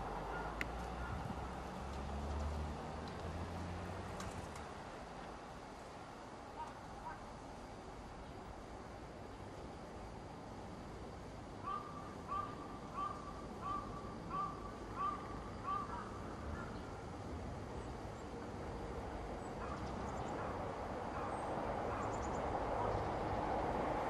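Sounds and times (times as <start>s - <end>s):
crow cawing: 11.6s - 16.8s
electric train rumbling past: 16.2s - 24.0s.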